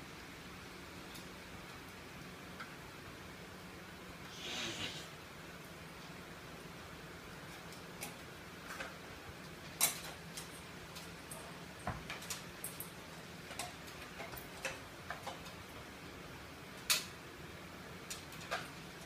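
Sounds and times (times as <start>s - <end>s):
light clicks and taps of tools: 7.5s - 15.6s, 16.8s - 17.2s.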